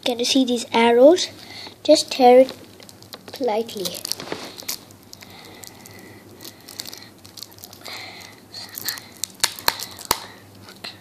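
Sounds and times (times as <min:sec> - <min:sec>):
carton crinkling and tearing: 0:02.4 - 0:05.8.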